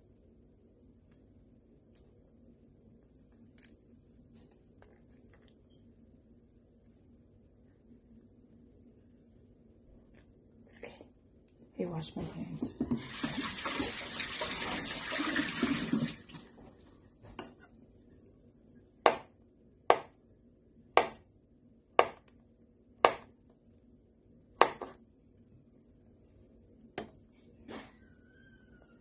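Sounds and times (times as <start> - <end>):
tap water running: 12.8 - 16.7.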